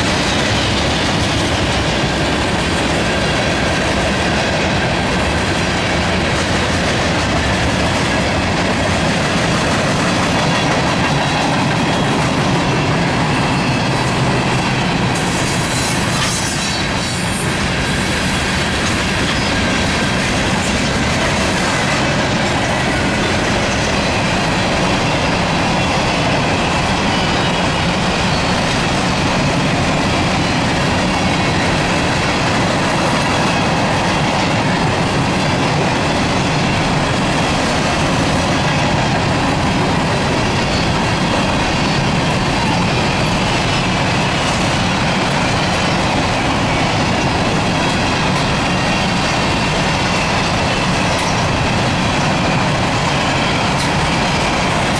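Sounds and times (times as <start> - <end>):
freight train wheels rumbling: 0.0 - 54.9.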